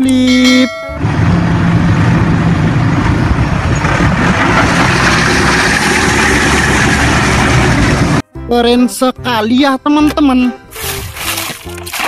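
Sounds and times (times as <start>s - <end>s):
forklift engine drone: 0.0s - 8.2s.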